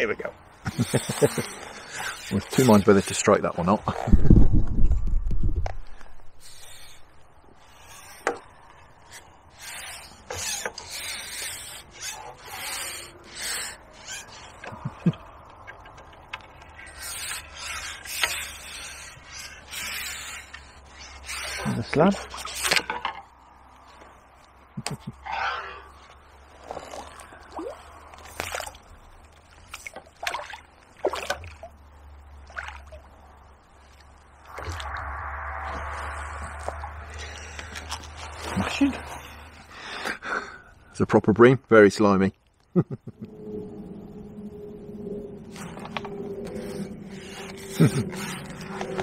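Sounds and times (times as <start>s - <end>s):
fishing pole rubbing and scraping: 0.6s - 30.2s, 33.8s - 39.7s, 43.2s - 49.0s.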